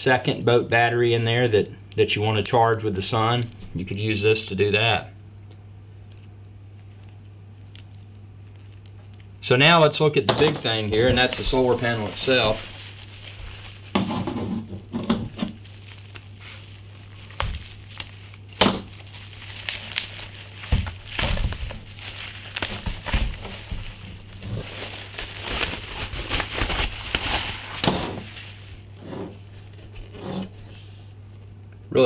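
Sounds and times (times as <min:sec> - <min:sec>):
bubble wrap crinkling: 0:06.0 - 0:09.4, 0:10.7 - 0:31.6.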